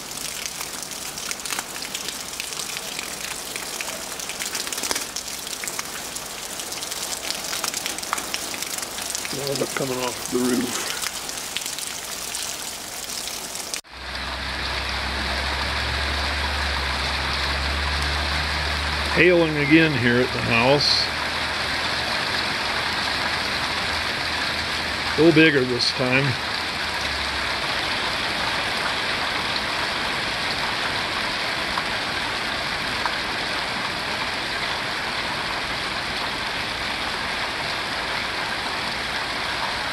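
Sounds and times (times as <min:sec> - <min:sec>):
hail and rain falling: 0:00.0 - 0:13.8.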